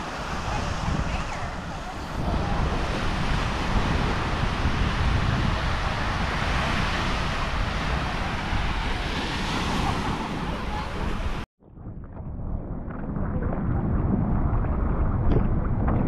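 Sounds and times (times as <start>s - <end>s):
sea surf: 0.0s - 11.5s
wind buffeting microphone: 0.0s - 16.0s.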